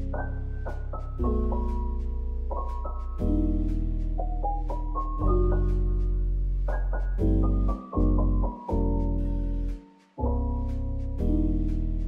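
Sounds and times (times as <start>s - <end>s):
keyboard chords: 0.0s - 12.0s
soft beat: 0.0s - 12.0s.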